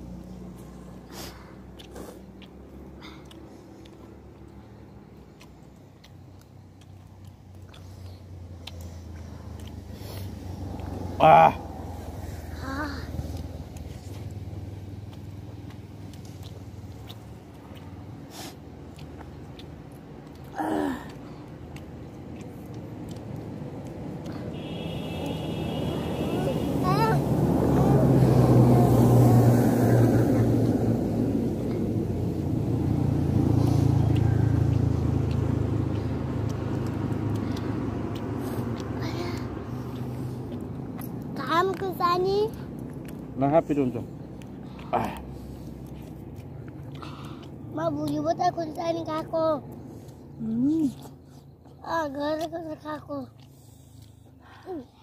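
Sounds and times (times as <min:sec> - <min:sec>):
people eating clicks and smacks: 0:00.0 - 0:12.2, 0:13.1 - 0:54.7
vehicle engine driving past: 0:00.0 - 0:20.4, 0:21.0 - 0:52.2.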